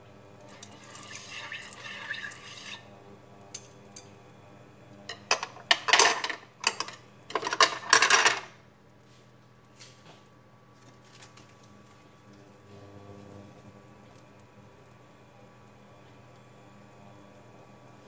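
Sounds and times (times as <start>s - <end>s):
scraping and rustling handling noises: 9.7s - 12.1s.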